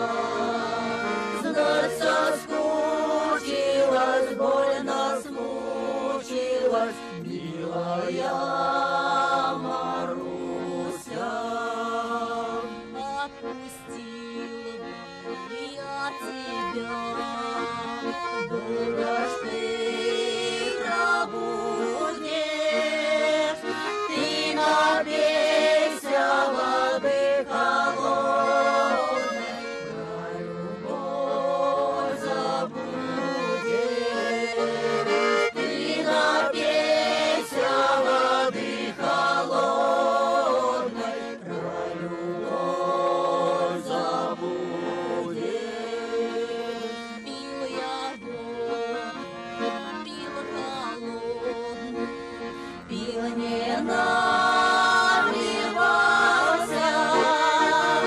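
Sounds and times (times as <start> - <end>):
button accordions: 0.0 - 58.0
folk choir singing: 0.0 - 58.0.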